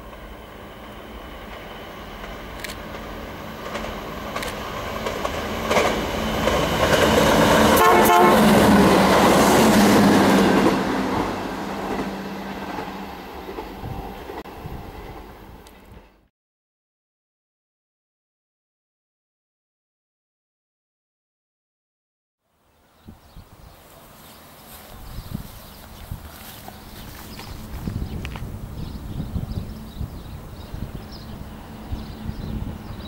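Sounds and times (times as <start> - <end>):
train engine drone: 0.0 - 16.3, 23.8 - 33.0.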